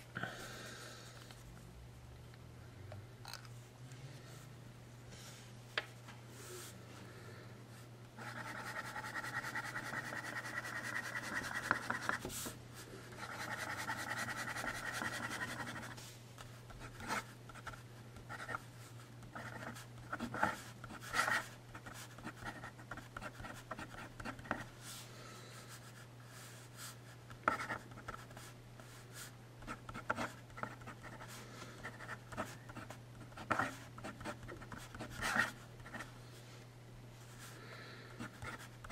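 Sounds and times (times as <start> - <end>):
pen nib scratching paper: 8.2 - 12.2, 13.2 - 16.0.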